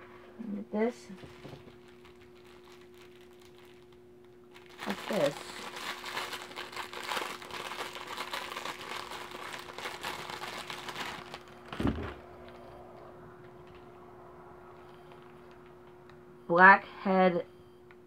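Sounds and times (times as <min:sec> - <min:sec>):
faint steady hum: 0:00.0 - 0:18.0
plastic wrapping crinkling: 0:01.1 - 0:12.6.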